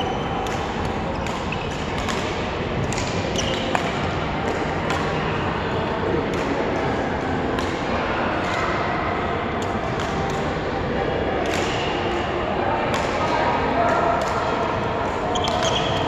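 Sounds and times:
rackets hitting shuttlecock: 0.1s - 5.4s, 6.2s - 8.8s, 9.6s - 10.5s, 11.4s - 12.0s, 12.9s - 13.3s, 13.9s - 16.0s
shoes squeaking on court: 15.3s - 16.0s.

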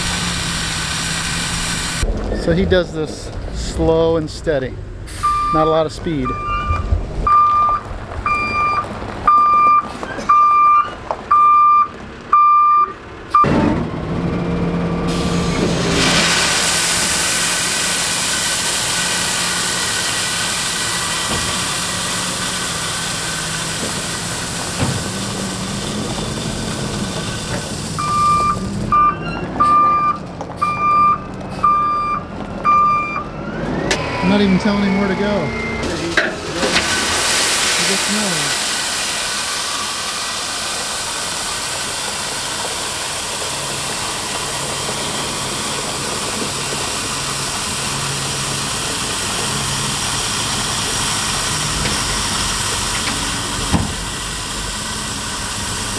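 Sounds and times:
truck engine pulling: 0.0s - 55.9s
reverse alarm beeping: 5.2s - 13.6s, 28.0s - 33.3s, 34.0s - 36.0s
gravel pouring from tailgate: 15.7s - 28.0s, 36.0s - 55.9s.

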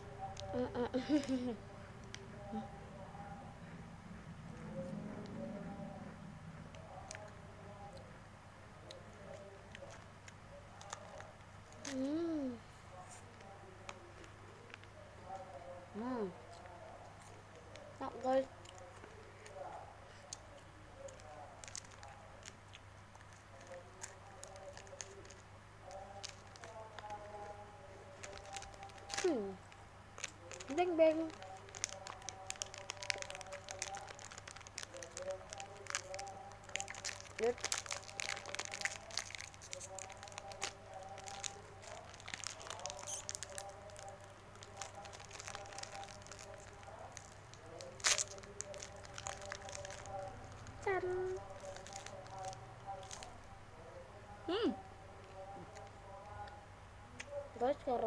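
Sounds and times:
steady low hum: 0.0s - 58.0s
wrapper crackling: 21.0s - 22.6s, 23.2s - 29.6s, 30.2s - 53.4s.

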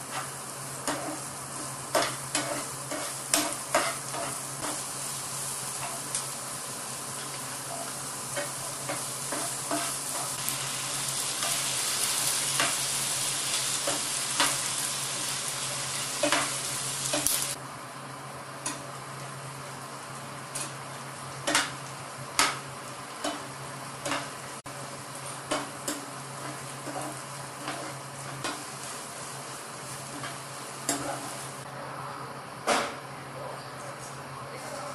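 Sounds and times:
onions sizzling in hot oil: 0.0s - 31.7s
metal spoon scraping a pan: 1.9s - 4.8s, 7.2s - 10.4s, 26.4s - 28.6s.

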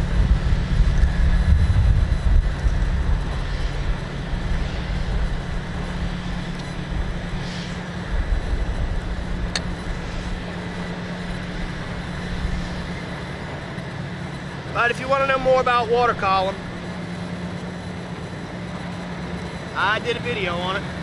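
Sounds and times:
low rumble: 0.0s - 14.6s
constant hum: 0.0s - 21.0s.

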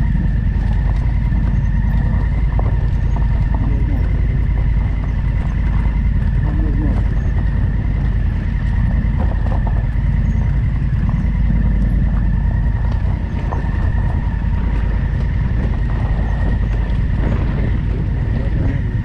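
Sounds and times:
faint steady whine: 0.0s - 19.0s
motorcycle engine rumbling: 0.0s - 19.0s.

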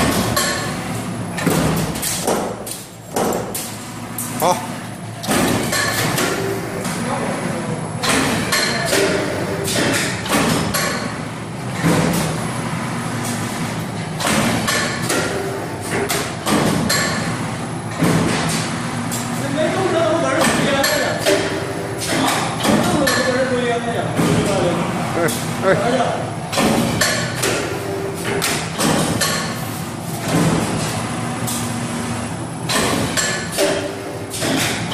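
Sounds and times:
sharp knocks of machine shear: 0.0s - 0.8s, 1.4s - 3.7s, 5.2s - 6.5s, 8.0s - 11.2s, 11.8s - 12.4s, 14.2s - 17.3s, 17.9s - 18.7s, 20.4s - 23.4s, 24.1s - 24.6s, 26.5s - 29.6s, 30.2s - 30.9s, 32.7s - 34.9s
steady machine hum: 0.0s - 34.9s.

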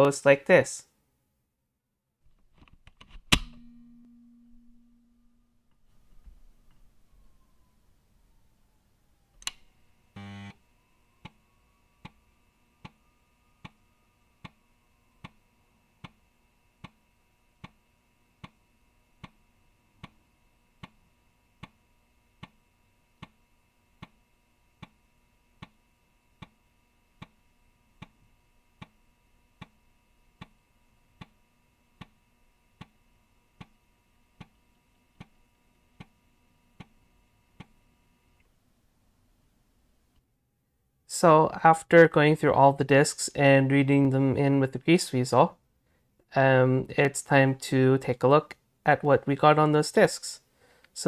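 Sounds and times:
floppy drive whine: 2.2s - 40.2s.

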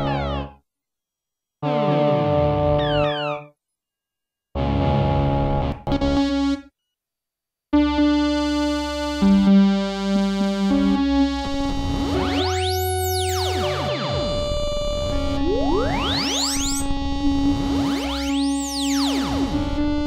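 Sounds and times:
held synth notes and chords: 7.8s - 20.0s
short synth sound: 14.1s - 19.2s
sweeping synth tone: 14.1s - 19.3s.

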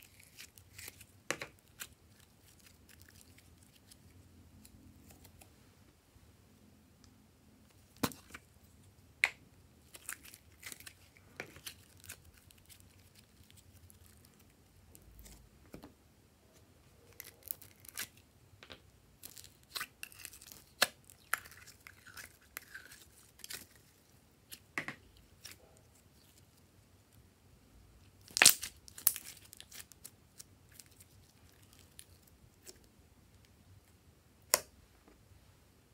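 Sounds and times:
crinkly slime crackles: 0.0s - 5.4s, 9.8s - 15.4s, 17.1s - 18.2s, 19.2s - 24.6s, 28.2s - 32.9s.

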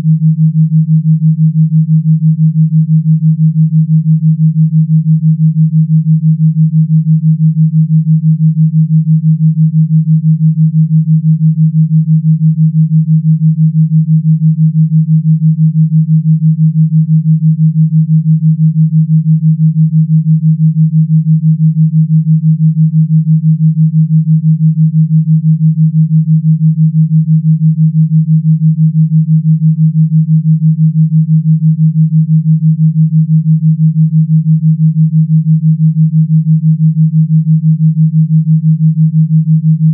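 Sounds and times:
pulsing low electronic tone: 28.7s - 39.9s.

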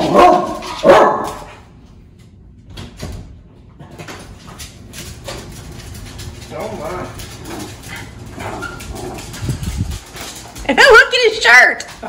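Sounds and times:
dog barking loudly: 0.0s - 1.5s
paws scratching at door: 3.8s - 12.0s.

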